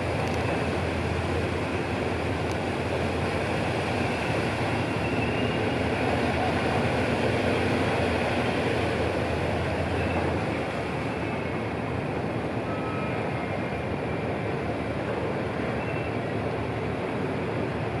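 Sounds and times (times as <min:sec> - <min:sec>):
diesel engines running: 0:00.0 - 0:12.6
churning boat wash: 0:00.0 - 0:18.0.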